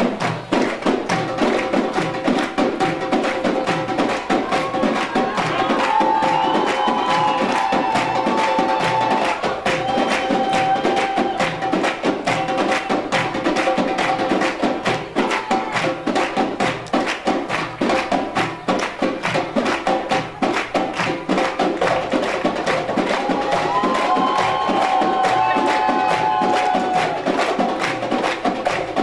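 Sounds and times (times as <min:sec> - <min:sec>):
goblet drums playing fast rhythm: 0:00.0 - 0:29.0.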